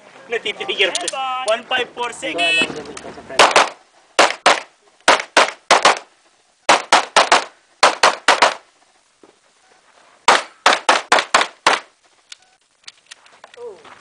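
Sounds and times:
handgun shots: 3.4 - 6.1.

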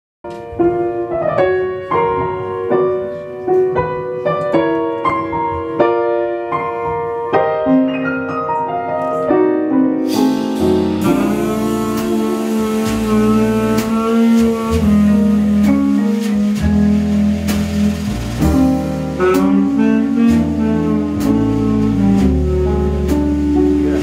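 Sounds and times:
jazz piano: 0.2 - 24.0
cymbals: 10.0 - 24.0
bass line: 10.1 - 24.0.

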